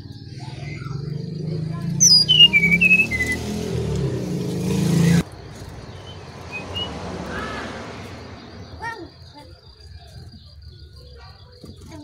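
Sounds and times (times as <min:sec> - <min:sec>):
bird whistling song: 0:00.0 - 0:03.9, 0:05.8 - 0:07.6
low engine rumble: 0:00.0 - 0:12.0.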